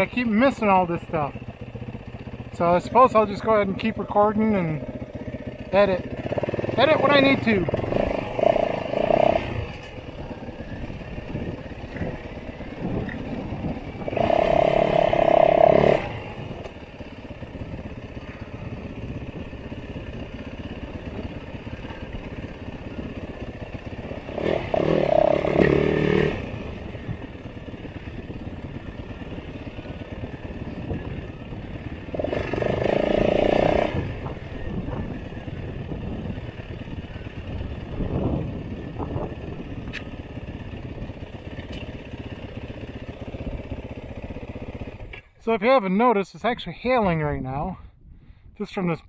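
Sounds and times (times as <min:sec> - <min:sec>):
motorcycle engine revving: 0:00.0 - 0:45.4.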